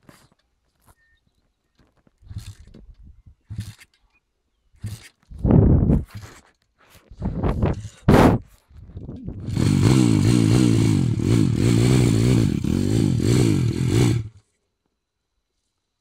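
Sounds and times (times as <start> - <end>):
pit bike engine revving: 4.8 - 5.1, 9.4 - 14.4.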